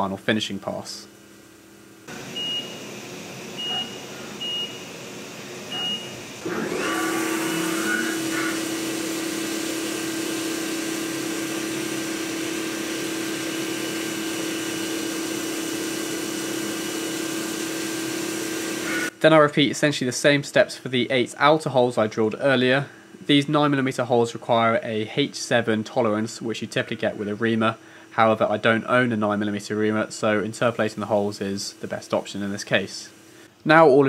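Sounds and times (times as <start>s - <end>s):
mill spindle running: 2.0s - 19.1s.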